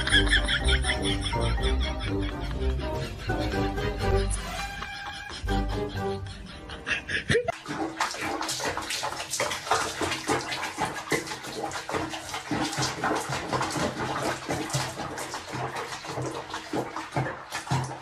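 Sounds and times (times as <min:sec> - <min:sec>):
water sloshing and splashing: 0:07.4 - 0:18.0.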